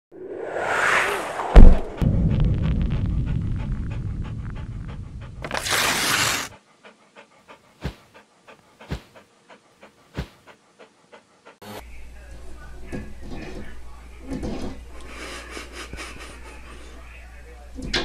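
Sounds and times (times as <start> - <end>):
short whoosh: 0.1 - 5.4
low rumble: 0.1 - 5.6
sharp hit: 0.6 - 4.2
dog panting: 3.0 - 5.5, 6.3 - 11.6.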